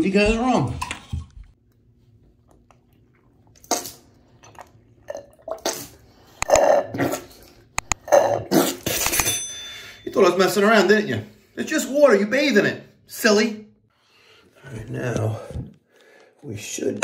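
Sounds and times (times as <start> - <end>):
wet slurps through a straw: 2.4 - 8.9.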